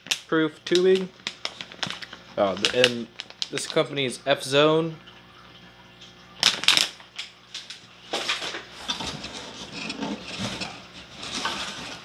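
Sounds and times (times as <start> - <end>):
plastic bag crinkling: 0.0 - 4.0, 6.4 - 12.0
cardboard boxes scraping: 9.0 - 12.0.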